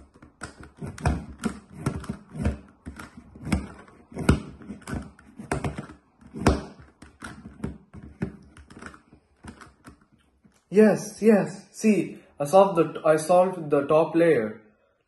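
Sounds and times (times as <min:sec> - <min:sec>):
plastic puzzle faces clicking: 0:00.0 - 0:10.1.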